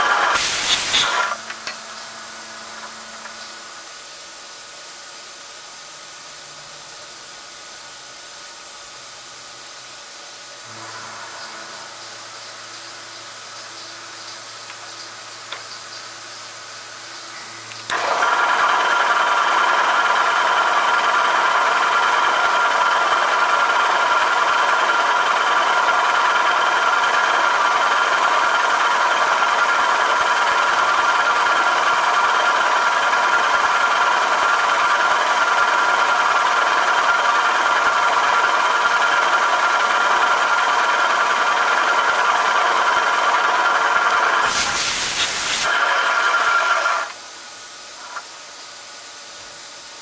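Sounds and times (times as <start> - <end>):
drill spindle whining: 17.4 - 47.2.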